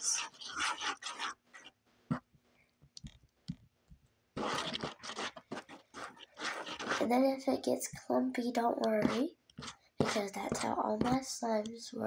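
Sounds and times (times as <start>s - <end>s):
hands squishing slime: 0.0s - 2.2s, 4.4s - 7.2s, 8.8s - 11.3s.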